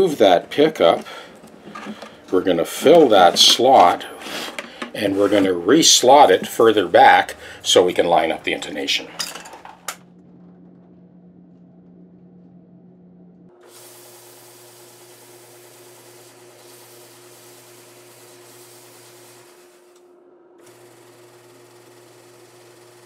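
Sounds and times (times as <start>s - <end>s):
disc sander hissing: 0.0s - 9.0s, 13.6s - 20.0s, 20.7s - 23.0s
faint electrical hum: 0.0s - 21.6s.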